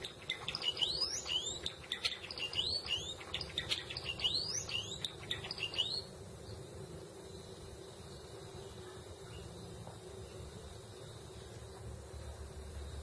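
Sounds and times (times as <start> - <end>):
sparrow singing: 0.0 - 6.6.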